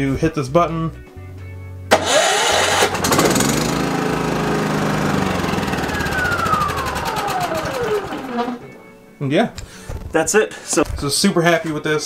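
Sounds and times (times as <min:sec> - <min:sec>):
generator engine cranking and running: 0:01.9 - 0:08.8
downward gliding tone: 0:05.3 - 0:08.8.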